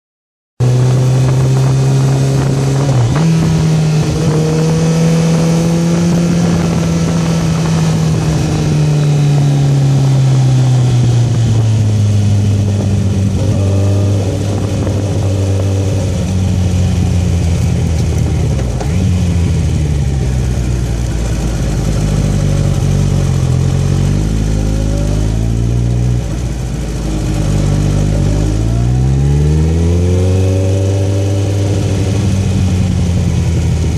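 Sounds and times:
wind rush: 0:00.6 - 0:20.2
motorcycle engine downshifting: 0:00.6 - 0:33.9.

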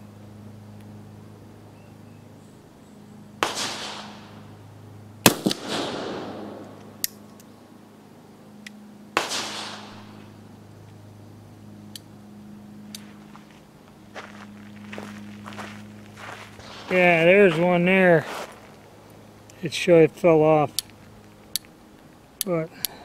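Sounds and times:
revolver shots: 0:03.4 - 0:04.4, 0:05.3 - 0:06.9, 0:09.2 - 0:10.1.

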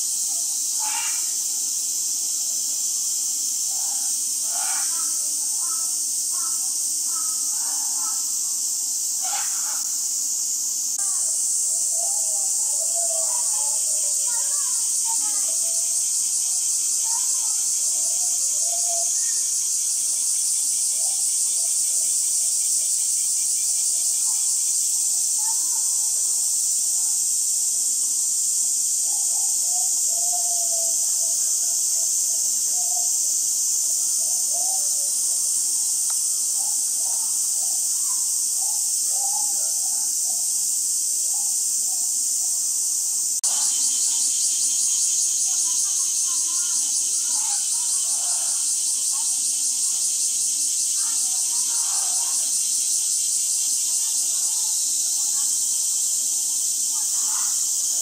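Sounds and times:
high-pitched insect chorus: 0:00.0 - 0:58.0
faint voices of people: 0:11.0 - 0:40.6, 0:43.4 - 0:52.9, 0:53.6 - 0:58.0.

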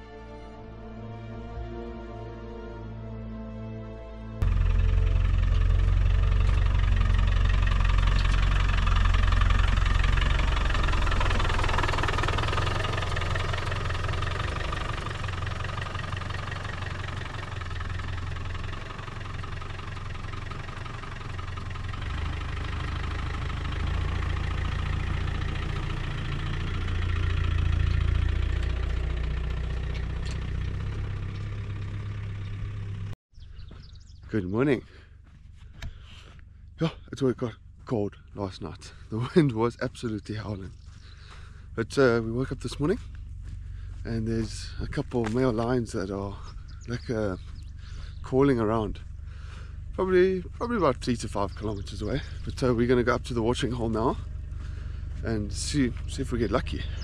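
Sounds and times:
road noise: 0:00.0 - 0:57.0
diesel engine running: 0:04.3 - 0:57.0.

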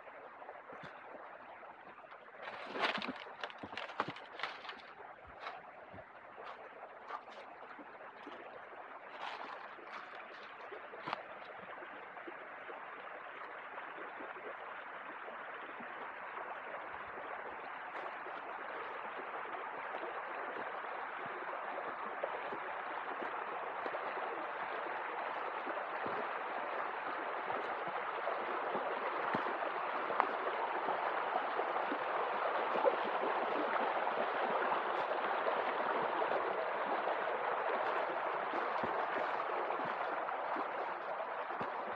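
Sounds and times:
stream water rushing: 0:00.0 - 0:41.9.

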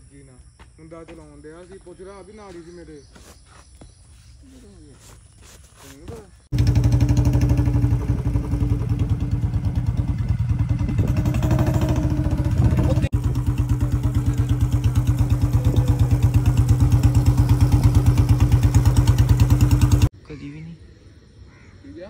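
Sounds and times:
motorcycle engine thumping: 0:06.1 - 0:20.1.

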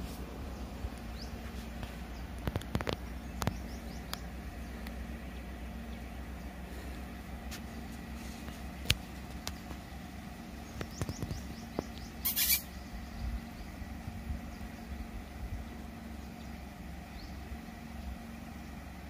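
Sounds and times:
foliage rustling: 0:00.0 - 0:03.6
low engine hum: 0:00.0 - 0:19.0
faint bird chirps: 0:00.5 - 0:07.0, 0:10.4 - 0:18.9.

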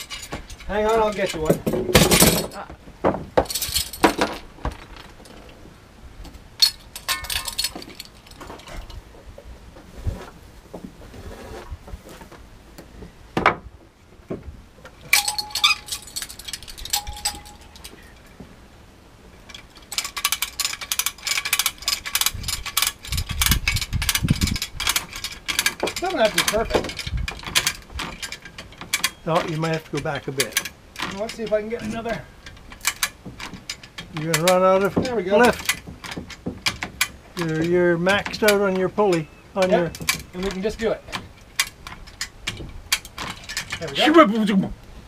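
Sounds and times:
metal chain clinking and rattling: 0:00.0 - 0:02.7, 0:03.4 - 0:05.6, 0:06.6 - 0:09.0, 0:15.1 - 0:18.3, 0:19.4 - 0:44.6.

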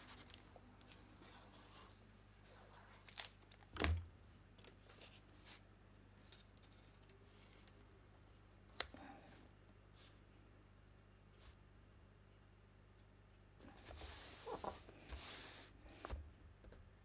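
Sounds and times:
paper rustling: 0:13.7 - 0:16.2.

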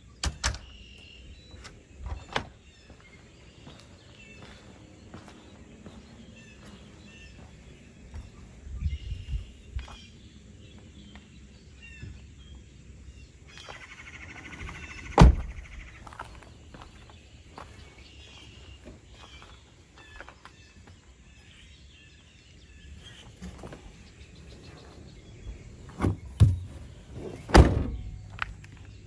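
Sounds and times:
birds chirping faintly: 0:00.0 - 0:29.0
car door shutting: 0:15.2 - 0:15.5, 0:26.0 - 0:28.2.

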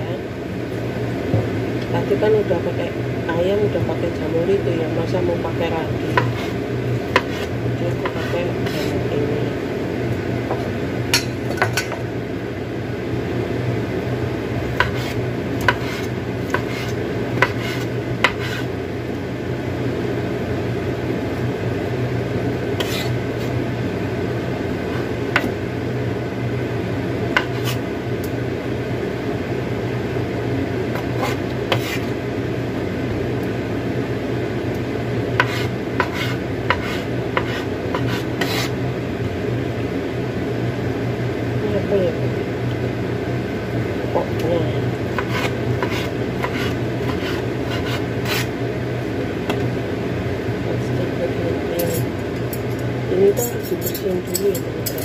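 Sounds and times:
low background hum: 0:00.0 - 0:55.0
knife slicing on cutting board: 0:14.8 - 0:18.7, 0:22.8 - 0:23.5, 0:31.0 - 0:32.1, 0:35.4 - 0:38.7, 0:45.2 - 0:48.5.

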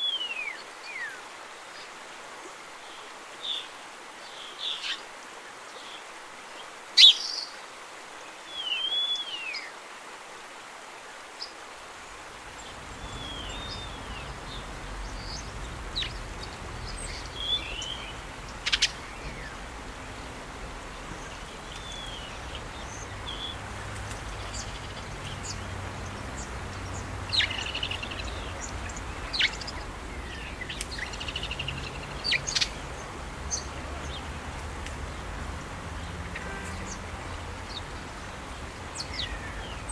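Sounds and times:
steady outdoor hiss: 0:00.0 - 0:39.9
wild birds chirping and whistling: 0:07.0 - 0:07.6, 0:08.5 - 0:09.7, 0:12.5 - 0:34.3, 0:36.0 - 0:39.9.

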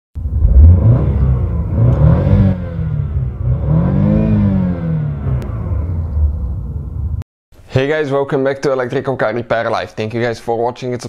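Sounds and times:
car engine revving: 0:00.2 - 0:07.2.

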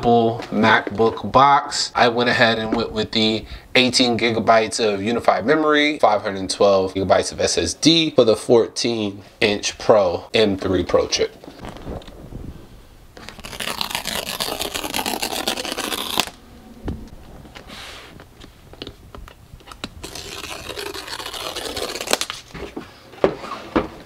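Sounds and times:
paper strips tearing: 0:13.2 - 0:16.4, 0:19.8 - 0:22.5.

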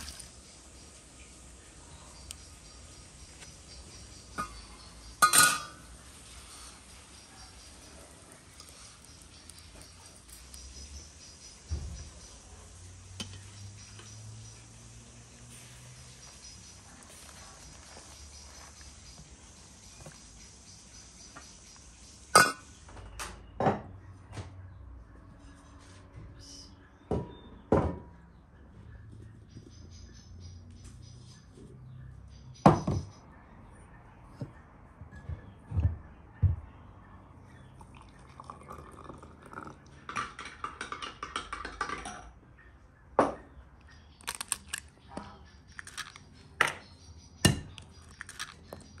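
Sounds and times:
ceramic lid clink: 0:05.2 - 0:05.8, 0:22.4 - 0:22.6.

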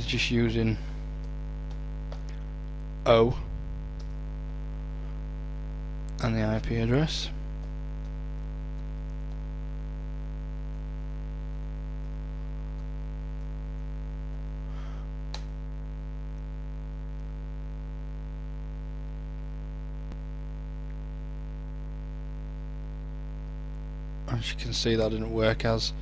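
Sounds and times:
mains hum: 0:00.0 - 0:26.0.

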